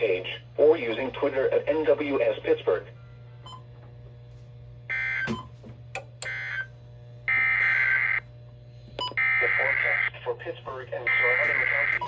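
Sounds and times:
receiver low hum: 0.0s - 12.0s
data tone bursts: 7.3s - 8.2s, 11.1s - 12.0s.

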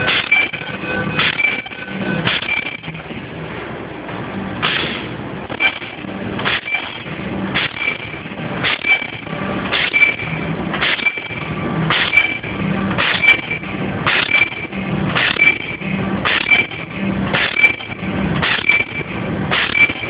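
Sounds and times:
machine stroke: 0.0s - 3.2s, 4.6s - 20.0s
machine humming: 0.0s - 20.0s.

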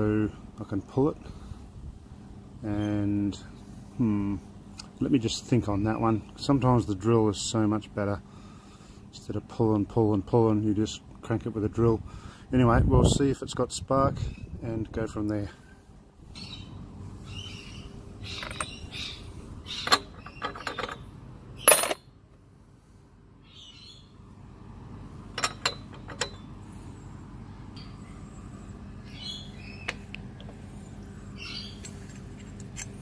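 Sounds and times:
birds chirping: 15.5s - 22.0s, 23.4s - 24.2s, 26.3s - 32.0s
socket tool clinking: 18.2s - 18.9s, 19.8s - 22.0s, 25.3s - 26.5s
metal clank: 18.3s - 18.8s, 19.8s - 21.0s, 21.6s - 22.1s, 25.3s - 26.5s.

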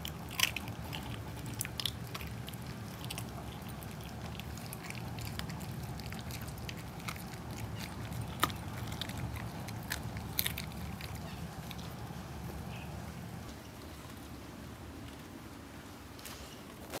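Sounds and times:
loud bone cracks: 0.0s - 12.0s
dog chewing and crunching: 0.0s - 14.2s.

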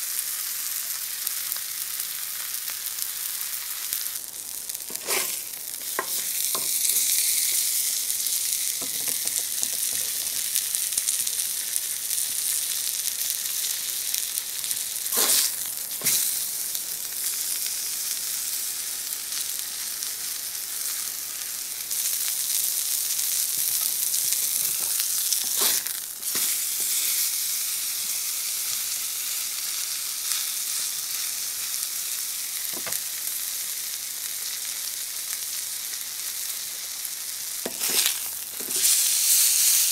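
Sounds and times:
steak sizzling on a griddle: 0.0s - 39.9s.

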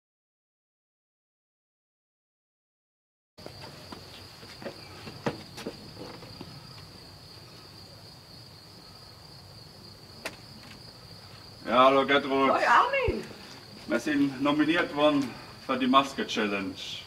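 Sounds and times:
footsteps on stone steps: 3.4s - 6.9s
insects trilling: 3.4s - 17.0s.

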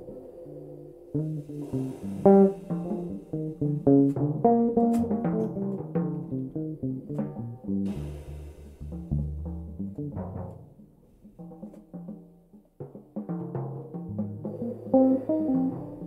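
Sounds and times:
cymbal hiss: 0.0s - 4.9s, 7.7s - 9.4s
electric bass plucked notes: 1.2s - 12.3s, 13.6s - 16.0s
low drum notes: 1.2s - 16.0s.

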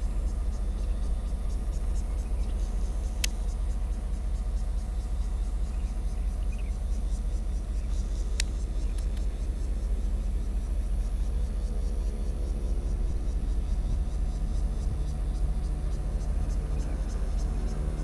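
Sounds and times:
locomotive engine rumble: 0.0s - 18.0s
sharp clicks: 3.2s - 3.5s, 8.3s - 9.3s.

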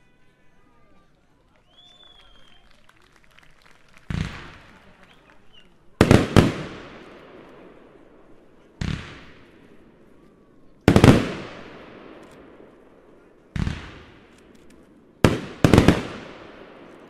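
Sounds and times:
fireworks bangs with echoing rumble: 4.1s - 4.8s, 6.0s - 10.2s, 10.8s - 17.0s.

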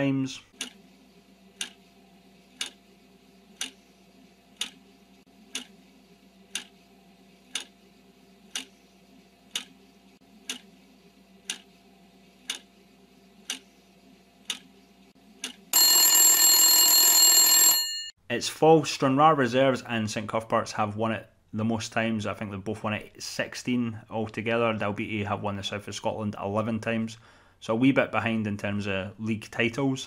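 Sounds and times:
clock ticking: 0.6s - 0.8s, 1.6s - 1.8s, 2.6s - 2.8s, 3.6s - 3.8s, 4.6s - 4.8s, 5.5s - 5.7s, 6.5s - 6.7s, 7.5s - 7.8s, 8.5s - 8.7s, 9.5s - 9.7s, 10.4s - 10.7s, 11.4s - 11.7s, 12.5s - 12.7s, 13.4s - 13.6s
alarm buzzer: 15.8s - 18.1s.

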